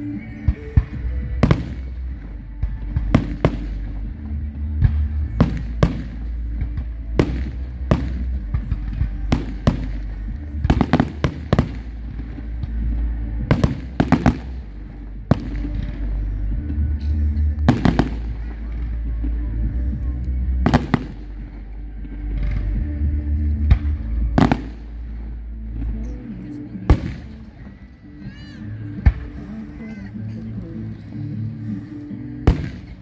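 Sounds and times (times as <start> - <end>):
low rumble: 0.0 - 33.0
fireworks bangs: 0.4 - 14.7, 17.1 - 19.1, 20.6 - 21.4, 23.6 - 24.9, 32.5 - 33.0.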